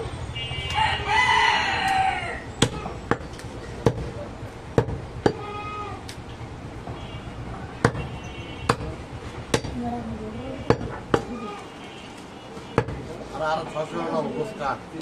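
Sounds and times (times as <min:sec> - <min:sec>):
cleaver chopping meat and bone: 0:02.6 - 0:04.2, 0:07.8 - 0:08.1, 0:08.7 - 0:09.8, 0:12.8 - 0:13.1.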